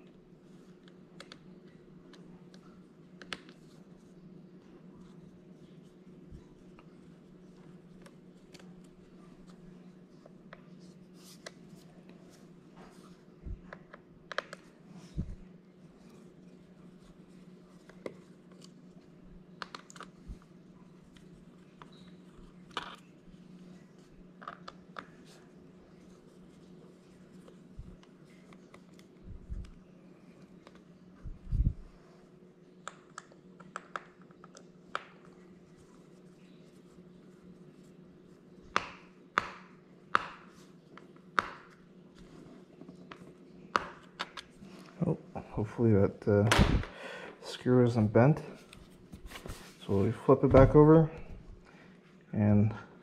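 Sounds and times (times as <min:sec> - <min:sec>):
faint steady hum: 0:00.0 - 0:53.0
low hum: 0:29.1 - 0:32.6.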